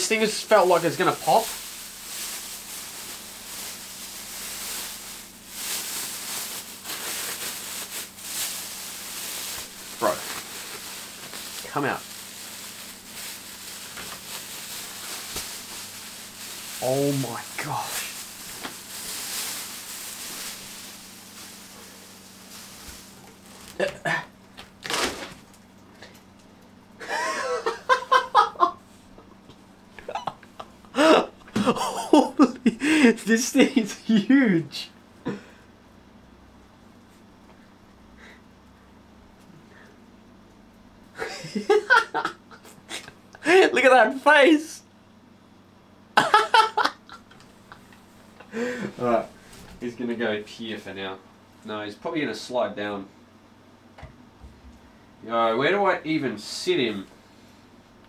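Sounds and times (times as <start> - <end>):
plastic bag crinkling: 0.0 - 25.7
man exclaiming: 16.8 - 18.2, 31.0 - 34.9, 43.4 - 44.8
man laughing: 23.8 - 24.3, 27.0 - 28.8, 30.0 - 34.6, 41.2 - 43.8, 46.2 - 47.8.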